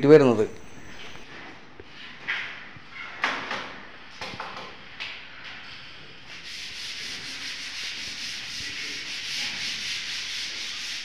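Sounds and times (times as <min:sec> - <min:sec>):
rasping scrape: 0:06.4 - 0:11.0.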